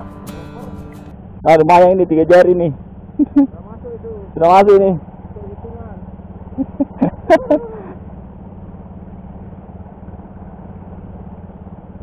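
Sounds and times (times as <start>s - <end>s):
steady low hum: 0.0s - 12.0s
man hooting: 7.3s - 8.0s.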